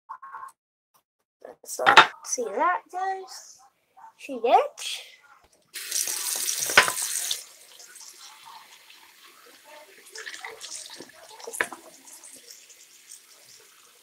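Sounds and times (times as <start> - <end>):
tap water running into glass jar: 5.8 - 14.0.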